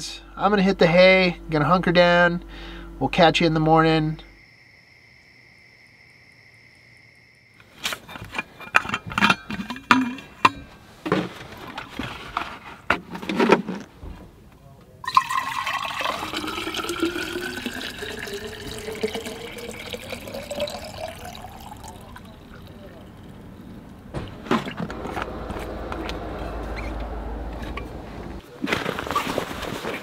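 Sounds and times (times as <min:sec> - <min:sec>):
faint steady hum: 0:00.0 - 0:28.4
knocks and clatter of handling: 0:07.8 - 0:14.6
water pouring into container: 0:15.1 - 0:23.4.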